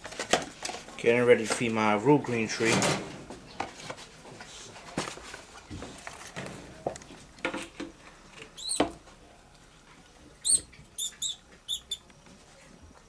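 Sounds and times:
mouse squeaking: 8.6 - 8.9, 10.4 - 12.1.

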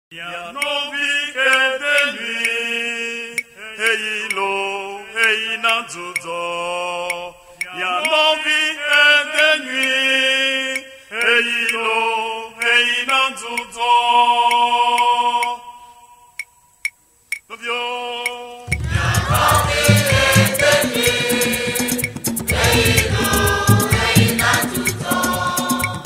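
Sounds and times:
voices singing a chant-like melody: 0.1 - 16.5, 17.5 - 26.0
faint clicks: 16.4 - 17.5.

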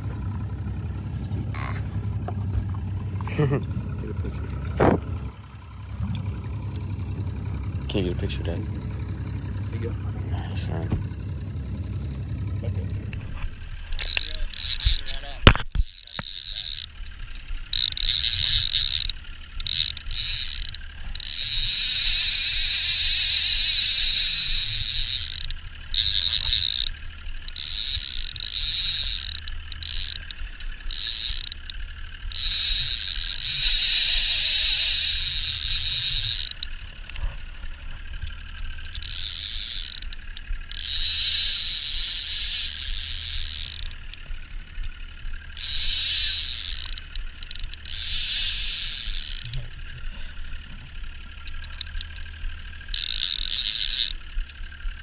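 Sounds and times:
fishing reel ratcheting: 13.8 - 37.2, 37.9 - 49.7, 51.0 - 55.0.

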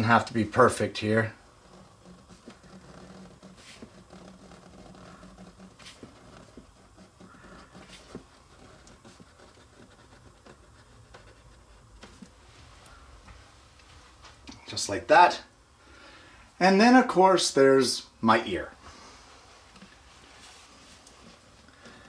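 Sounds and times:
pen scratching on paper: 1.4 - 13.0.

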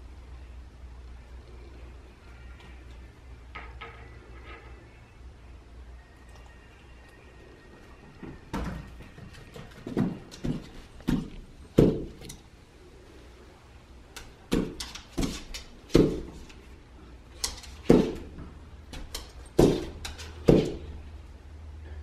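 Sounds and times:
dog paws thumping on wall: 8.0 - 12.4, 14.1 - 16.6, 17.3 - 21.0.

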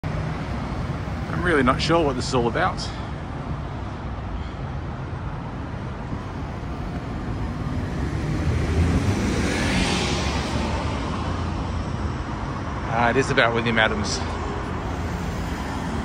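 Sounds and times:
city street traffic: 0.0 - 16.0
vehicle passing close: 5.9 - 16.0.

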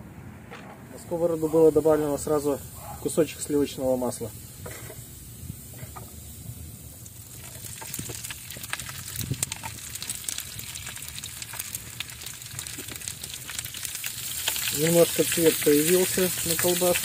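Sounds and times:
sausages sizzling in a pan: 1.5 - 17.0
spitting fat crackles: 7.0 - 17.0.

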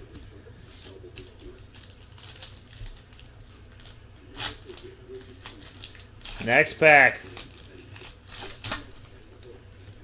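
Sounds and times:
wrapper crinkling and tearing: 1.2 - 9.2.

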